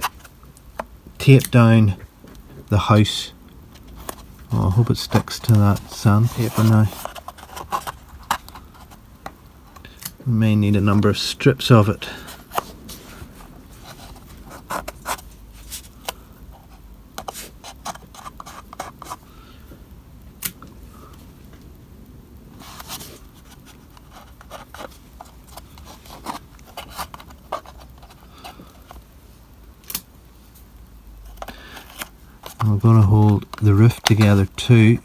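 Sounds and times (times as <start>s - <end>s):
fingers clicking and scraping card: 3.8s - 9.0s, 13.4s - 19.2s, 22.6s - 29.0s, 31.2s - 35.0s.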